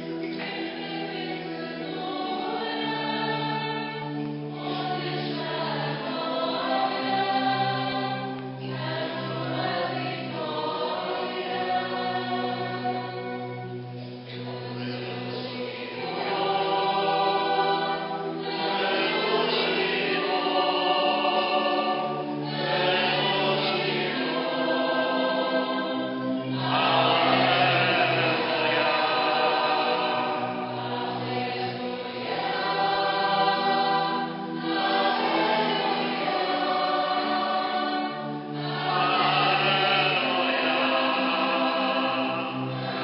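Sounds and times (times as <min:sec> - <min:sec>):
church choir singing a hymn: 0:00.0 - 0:43.0
low organ notes: 0:00.0 - 0:43.0.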